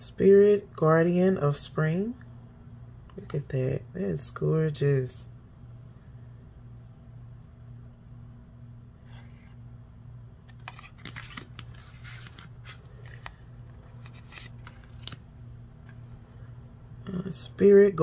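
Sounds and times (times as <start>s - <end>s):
steady low hum: 0.0s - 18.0s
cards scraping and tapping: 10.5s - 15.2s.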